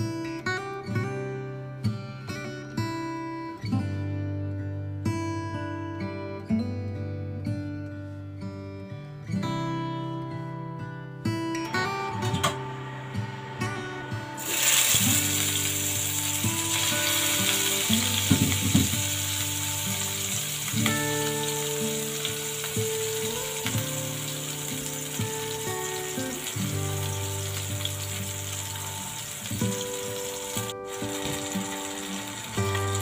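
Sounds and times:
background music: 0:11.0 - 0:33.0
fish frying in hot oil: 0:14.4 - 0:33.0.

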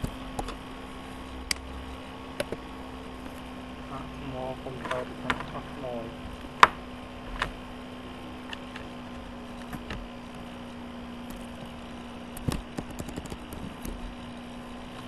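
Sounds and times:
small clicks and taps: 0:00.0 - 0:00.6, 0:02.4 - 0:02.6, 0:11.2 - 0:14.2
steady low hum: 0:00.0 - 0:15.0.

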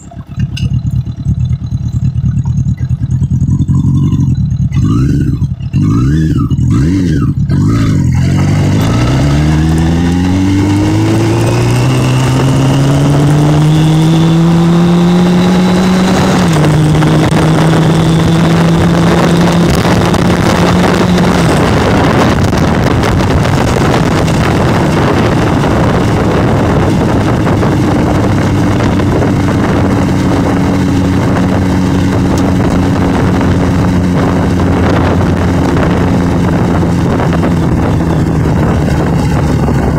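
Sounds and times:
motorcycle engine accelerating: 0:00.0 - 0:39.9
wind rushing on microphone: 0:07.1 - 0:39.9.

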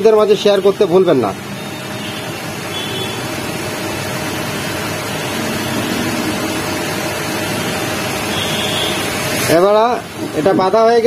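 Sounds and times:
steady rushing noise: 0:01.3 - 0:11.0.

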